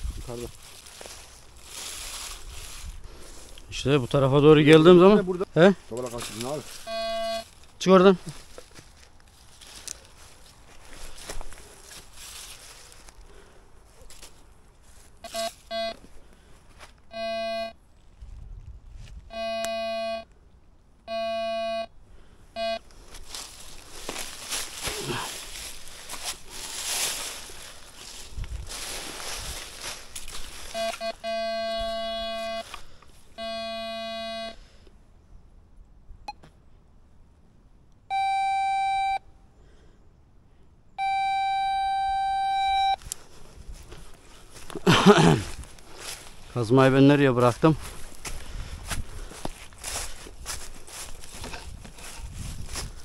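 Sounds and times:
metal detector beeps: 0:06.5 - 0:07.5, 0:15.2 - 0:16.0, 0:17.1 - 0:17.8, 0:19.3 - 0:20.3, 0:21.1 - 0:21.9, 0:22.6 - 0:22.8, 0:30.7 - 0:32.8, 0:33.4 - 0:34.6, 0:38.1 - 0:39.3, 0:41.0 - 0:43.0
electronic beep tones: 0:06.8 - 0:07.4, 0:15.2 - 0:16.0, 0:22.6 - 0:22.8, 0:30.7 - 0:32.6, 0:41.0 - 0:43.0.

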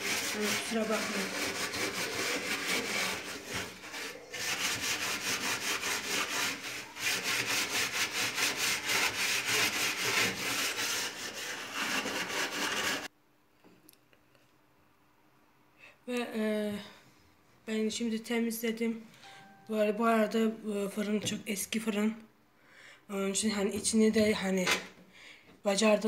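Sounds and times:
hand scrubbing metal oven floor: 0:00.0 - 0:13.1.

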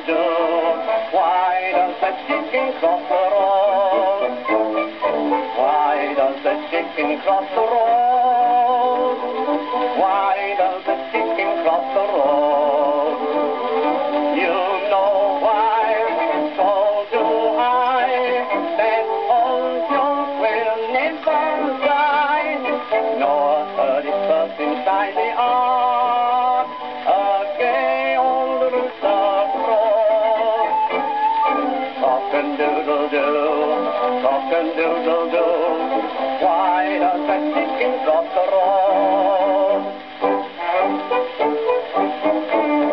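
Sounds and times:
man singing on old record: 0:00.0 - 0:42.9.

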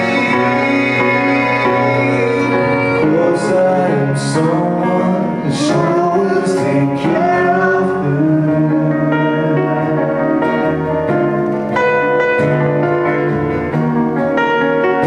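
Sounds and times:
man singing: 0:00.0 - 0:10.8
acoustic guitar: 0:00.0 - 0:15.0
grand piano: 0:00.0 - 0:15.0.

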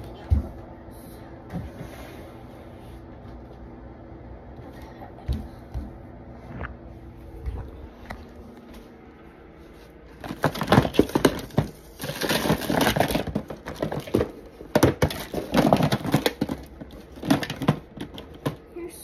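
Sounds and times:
small objects clattering: 0:10.1 - 0:18.7.

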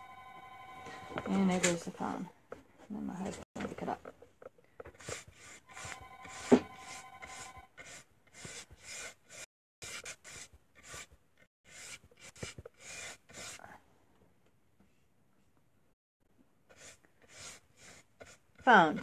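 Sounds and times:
telephone ringing: 0:00.0 - 0:01.8, 0:05.7 - 0:07.7
paintbrush scratching on wood: 0:04.9 - 0:13.6, 0:16.7 - 0:19.0.

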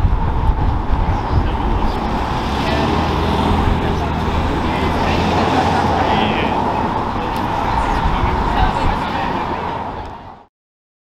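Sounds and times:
low outdoor rumble: 0:00.0 - 0:10.2
crowd voices murmuring: 0:00.2 - 0:10.5.

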